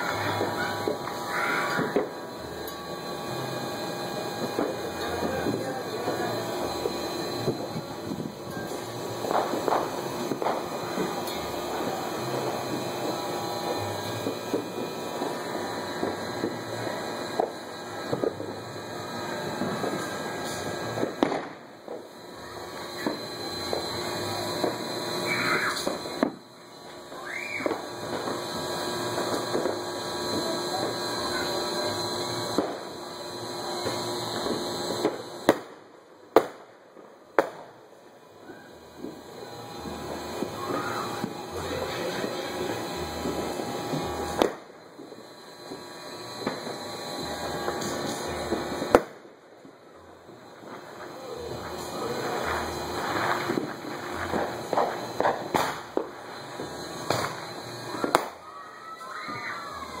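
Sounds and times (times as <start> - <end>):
fireworks exploding: 0.0 - 60.0
sharp firework bangs: 9.2 - 12.6, 19.5 - 22.0, 32.5 - 32.9, 33.8 - 36.7, 37.4 - 37.8, 43.3 - 44.7, 47.6 - 49.3, 52.2 - 56.2, 58.0 - 58.5.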